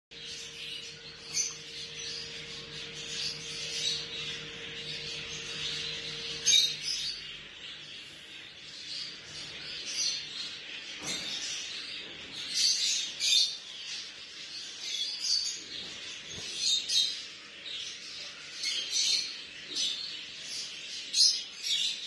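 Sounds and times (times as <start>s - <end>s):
budgerigars chirping: 0.2s - 22.0s.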